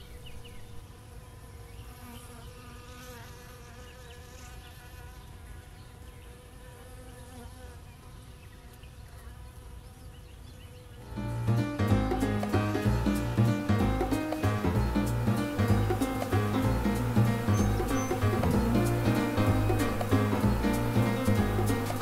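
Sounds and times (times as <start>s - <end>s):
bees buzzing: 0.0s - 7.8s, 11.0s - 22.0s
music: 11.1s - 22.0s.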